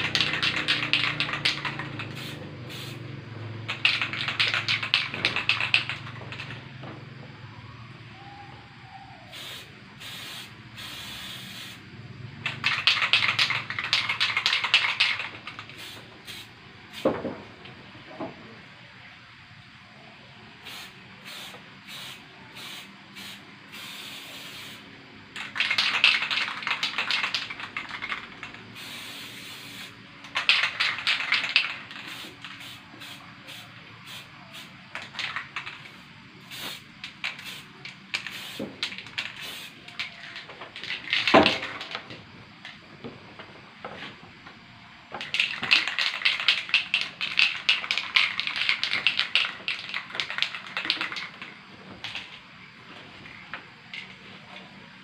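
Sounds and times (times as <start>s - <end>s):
spray paint can hissing: 0.0s - 6.7s, 9.3s - 11.8s, 12.4s - 17.1s, 20.6s - 42.0s, 45.2s - 52.4s.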